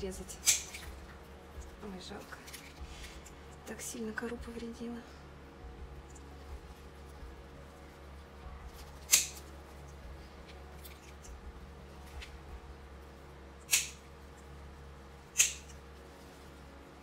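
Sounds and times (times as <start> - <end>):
pruning snips cutting roots: 0.2 - 0.9, 9.0 - 9.5, 13.6 - 14.0, 15.3 - 15.8.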